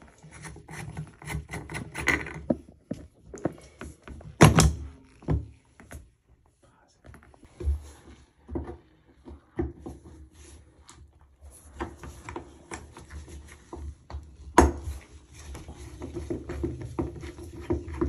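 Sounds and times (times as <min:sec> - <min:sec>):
screwdriver metal clicks and scraping: 0:00.1 - 0:02.5.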